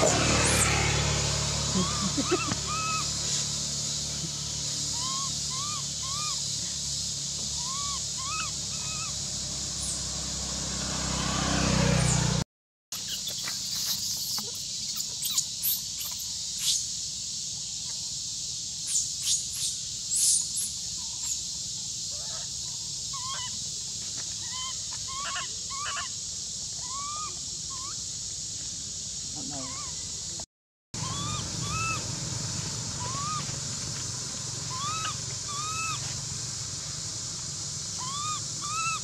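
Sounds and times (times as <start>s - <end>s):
high insect drone: 0.0s - 12.4s, 13.0s - 39.0s
rising and falling chirping calls: 1.6s - 10.2s, 13.0s - 16.9s, 31.0s - 32.2s, 33.0s - 33.5s, 34.6s - 36.1s, 38.0s - 39.0s.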